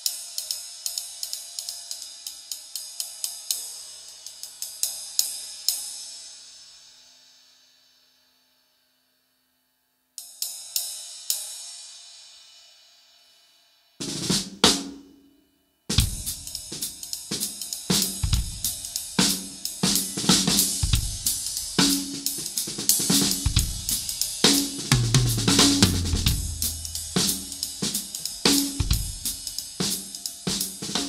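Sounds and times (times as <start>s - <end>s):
drum kit playing a groove: 14.0s - 15.1s, 15.9s - 31.0s
ride cymbal ringing: 16.0s - 31.0s.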